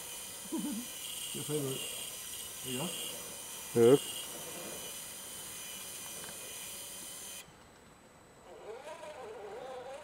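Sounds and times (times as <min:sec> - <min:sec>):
electric winch motor whine: 0:00.0 - 0:07.5, 0:08.4 - 0:10.0
wavering buzz: 0:00.0 - 0:07.6.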